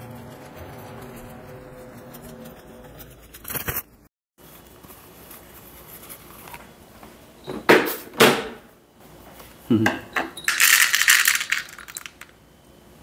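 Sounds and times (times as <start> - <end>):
household items clattering: 10.5 - 12.3.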